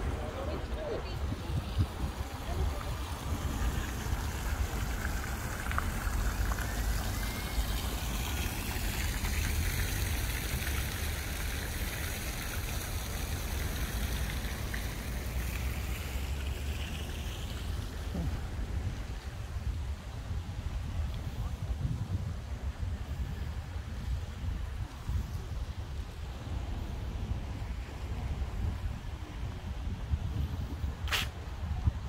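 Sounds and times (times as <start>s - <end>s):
fountain jet splashing into pond: 1.6s - 18.3s.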